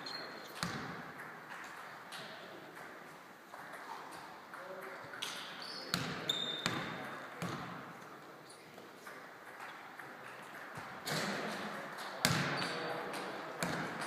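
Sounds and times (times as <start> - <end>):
basketball bouncing on wooden floor: 0.6 - 1.6, 5.9 - 7.8, 13.6 - 14.0.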